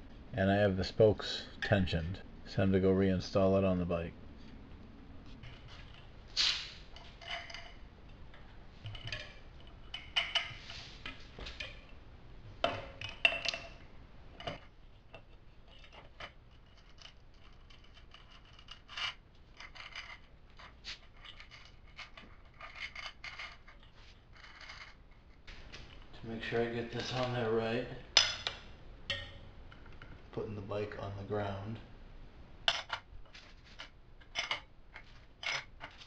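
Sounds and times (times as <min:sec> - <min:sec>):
metallic clinks and scrapes: 0:05.3 - 0:08.2, 0:14.4 - 0:25.2.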